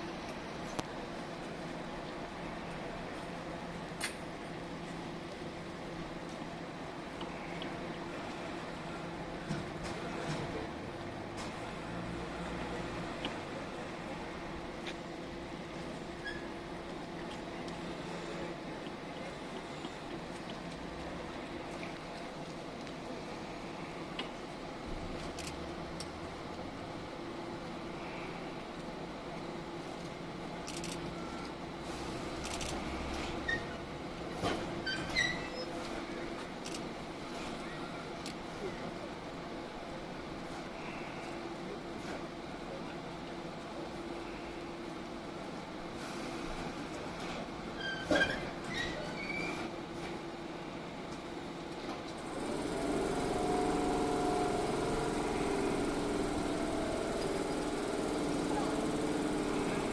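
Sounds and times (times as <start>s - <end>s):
electric train motors humming: 0.0s - 34.9s, 49.8s - 59.9s
electric train humming: 52.1s - 59.9s.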